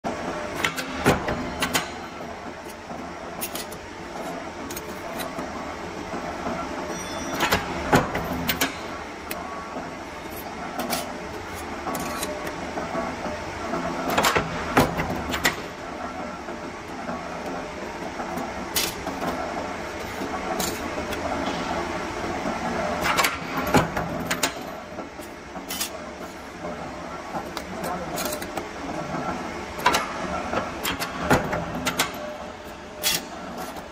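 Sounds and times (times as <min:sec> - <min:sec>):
punching machine humming: 0:00.1 - 0:33.9.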